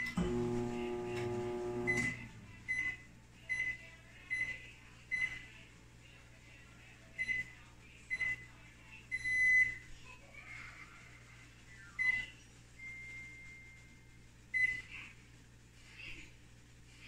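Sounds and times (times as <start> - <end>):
microwave keypad beeps: 1.1 - 4.5.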